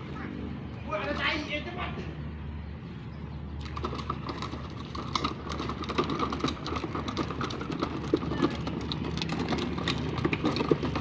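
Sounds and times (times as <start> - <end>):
plastic wheels rolling on concrete: 0.9 - 1.8, 3.6 - 11.0.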